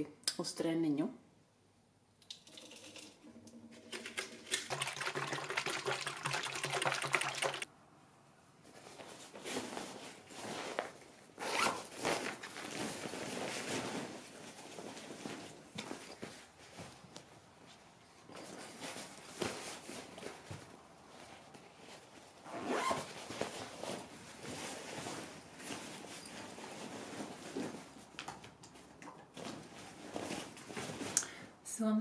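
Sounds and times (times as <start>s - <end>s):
liquid pouring into plastic bottle: 2.2s - 7.6s
fabric rustling: 8.5s - 31.2s.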